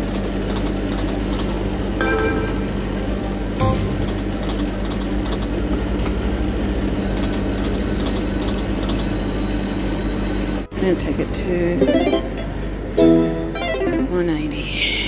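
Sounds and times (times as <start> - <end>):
steady low hum: 0.0 - 15.0
electronic reel-spin ticks: 4.1 - 5.6, 7.2 - 9.1.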